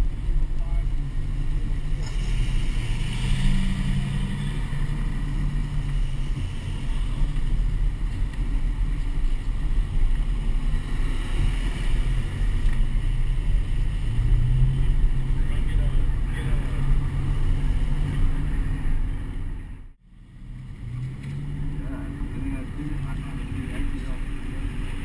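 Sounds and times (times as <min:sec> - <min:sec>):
car engine rumbling: 0:00.0 - 0:25.0.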